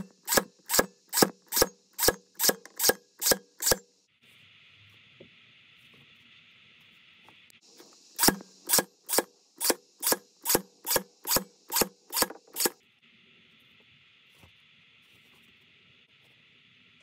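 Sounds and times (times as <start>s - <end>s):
staple gun firing: 8.2s - 12.8s.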